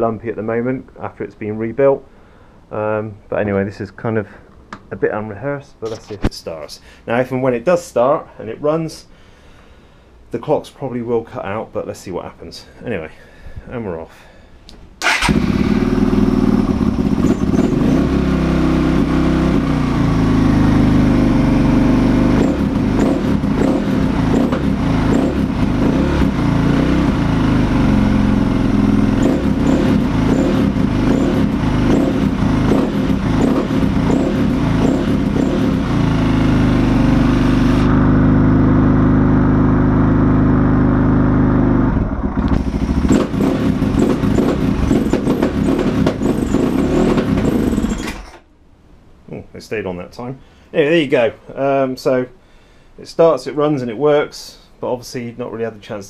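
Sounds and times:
motorcycle engine revving: 15.0s - 48.4s.

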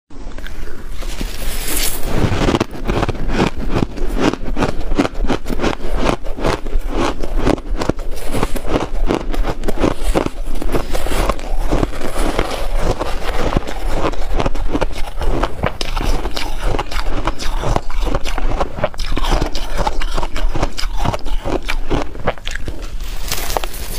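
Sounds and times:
chewing crunchy ice: 0.4s - 23.9s
spoon scooping through ice: 1.0s - 2.6s, 5.9s - 18.6s, 19.2s - 23.9s.

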